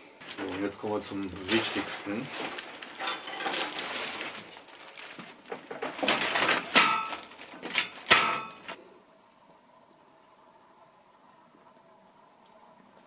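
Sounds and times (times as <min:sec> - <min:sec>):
faint background hum: 0:00.0 - 0:13.0
plastic film crinkling: 0:00.2 - 0:08.8.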